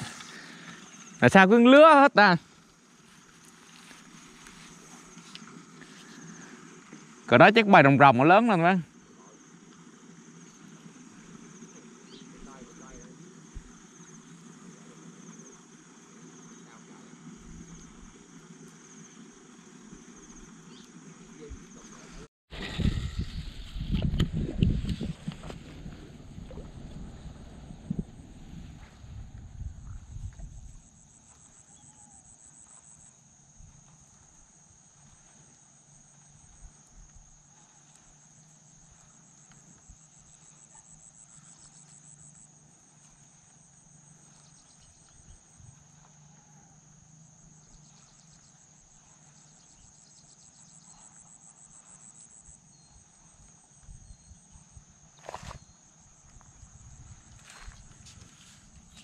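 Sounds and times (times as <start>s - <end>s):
insects chirring: 0.0s - 59.0s
pulsing insect trill: 0.0s - 59.0s
wind rumble on microphone: 22.5s - 30.9s, 53.8s - 59.0s.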